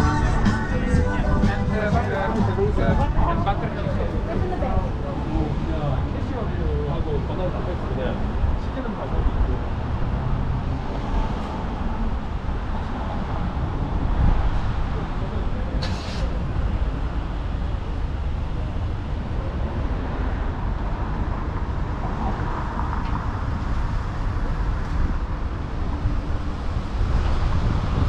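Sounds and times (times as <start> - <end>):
cars passing on road: 0.0 - 28.0
wind on microphone: 8.1 - 28.0
short hiss: 15.8 - 16.3.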